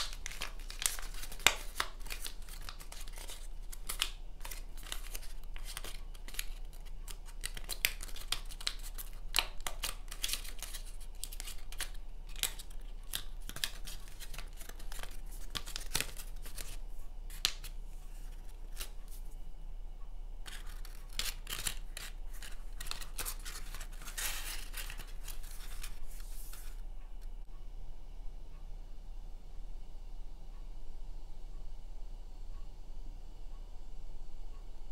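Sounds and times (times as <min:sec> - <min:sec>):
paper crinkling and rustling: 0:00.0 - 0:19.3, 0:20.5 - 0:26.9.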